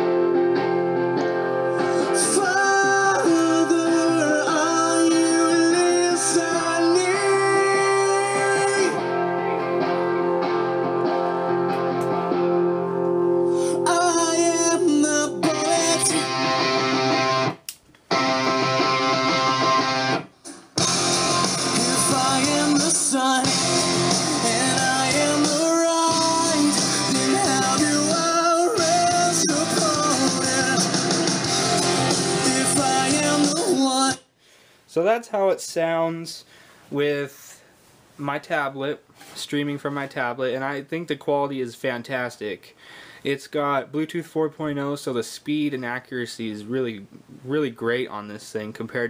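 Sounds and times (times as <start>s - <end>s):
guitar song with singing: 0.0s - 20.2s, 20.8s - 34.2s.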